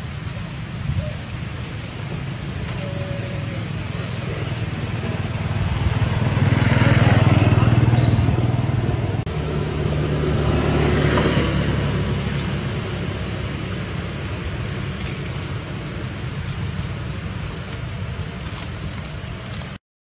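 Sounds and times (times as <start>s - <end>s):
vehicle engine rumbling: 0.0s - 19.8s.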